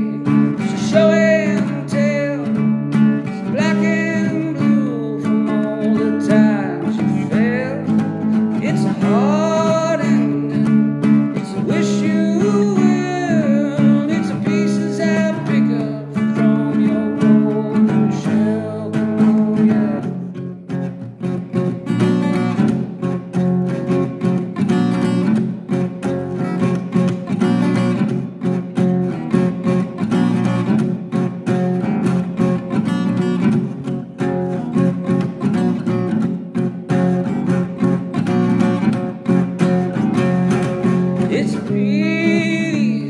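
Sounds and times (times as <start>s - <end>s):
man singing: 0.0s - 20.4s, 39.7s - 43.0s
strummed acoustic guitar: 0.0s - 43.0s.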